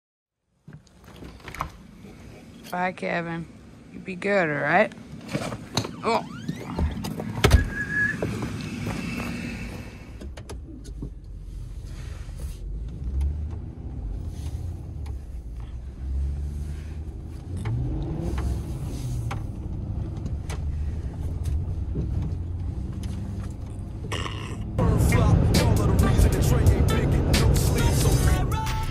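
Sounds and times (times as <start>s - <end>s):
tyre noise on snowy road: 6.0s - 28.9s
truck engine running: 6.2s - 28.9s.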